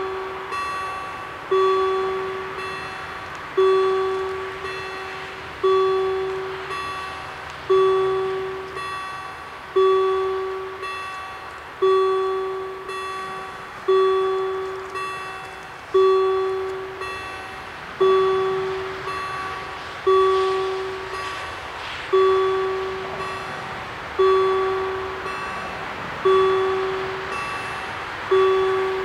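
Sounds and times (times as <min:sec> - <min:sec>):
level crossing warning bells: 0:00.0 - 0:29.0.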